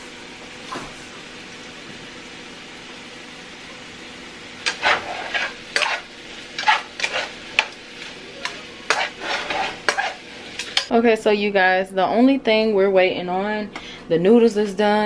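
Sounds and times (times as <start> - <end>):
chicken sizzling in oil: 0.0 - 10.9
metal utensil scraping a pan: 4.6 - 7.8, 8.4 - 10.9.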